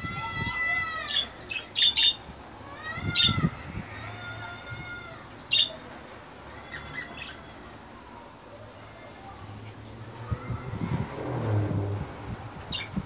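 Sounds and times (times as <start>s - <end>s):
rising and falling bird calls: 0.9s - 3.5s
budgerigars chirping: 1.1s - 2.2s, 5.5s - 5.8s.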